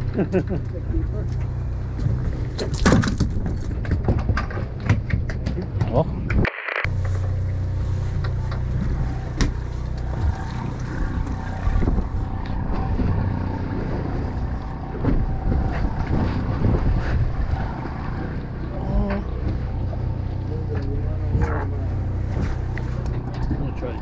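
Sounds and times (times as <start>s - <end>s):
boat engine running: 0.0s - 24.0s
wind on microphone: 8.7s - 20.2s.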